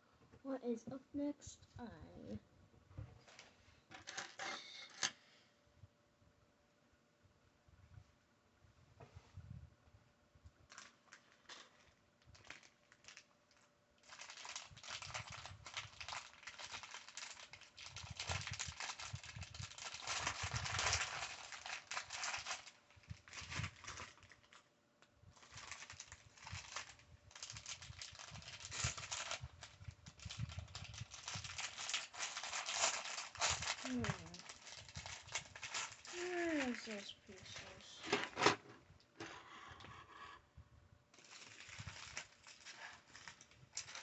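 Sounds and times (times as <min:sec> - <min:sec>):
plastic bag crinkling: 0:10.6 - 0:24.7, 0:25.4 - 0:38.6, 0:41.1 - 0:44.0
small plastic pieces rattling: 0:14.0 - 0:24.6, 0:30.2 - 0:37.8.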